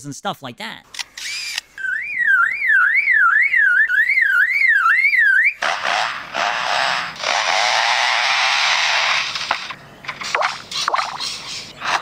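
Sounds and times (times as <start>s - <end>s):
bird mimicking car alarm: 1.8s - 5.6s.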